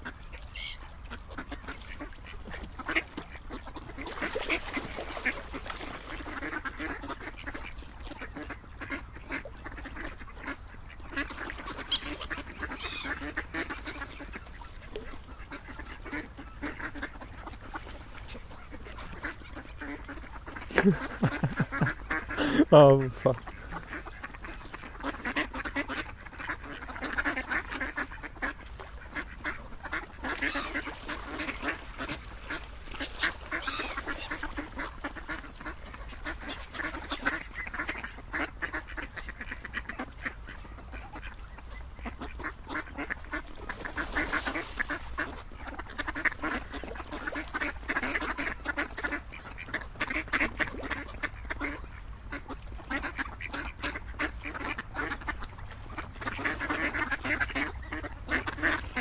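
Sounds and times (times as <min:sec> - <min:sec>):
ducks quacking: 0:00.0 - 0:59.0.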